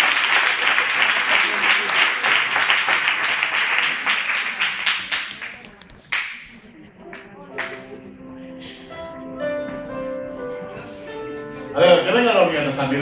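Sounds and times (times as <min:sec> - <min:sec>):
congregation applauding: 0:00.0 - 0:06.5, 0:07.6 - 0:07.9
keyboard playing held chords: 0:07.8 - 0:12.9.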